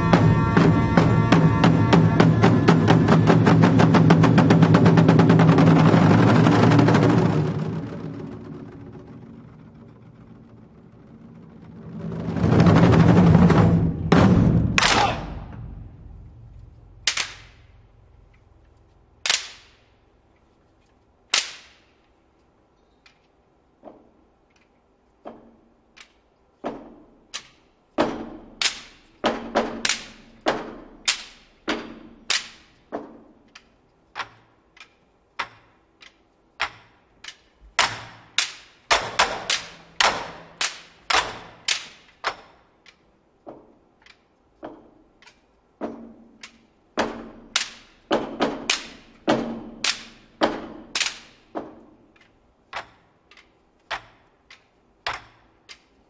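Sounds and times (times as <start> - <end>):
barrel drums struck with sticks: 0.0 - 18.5, 26.6 - 33.4, 45.7 - 52.0.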